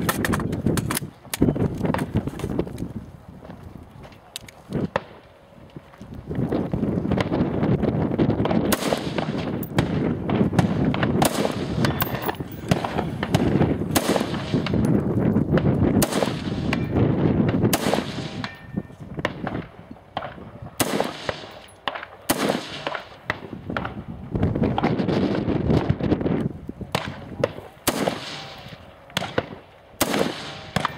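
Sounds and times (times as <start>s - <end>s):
rifle gunshots: 8.6s - 14.8s, 16.0s - 16.9s, 17.5s - 18.5s, 20.2s - 23.4s, 27.0s - 30.9s.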